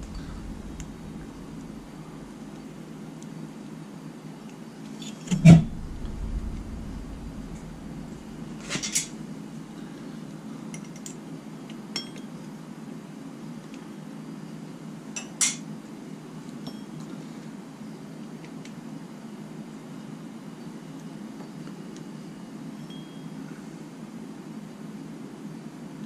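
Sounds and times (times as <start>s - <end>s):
steady low hum: 0.0s - 3.9s, 5.1s - 10.7s
metal tools clinking: 8.7s - 9.1s.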